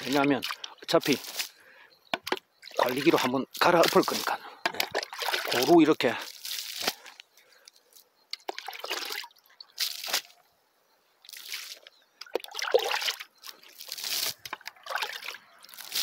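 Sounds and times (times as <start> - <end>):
liquid sloshing and splashing: 2.2 - 5.8, 8.4 - 10.3, 11.3 - 16.0.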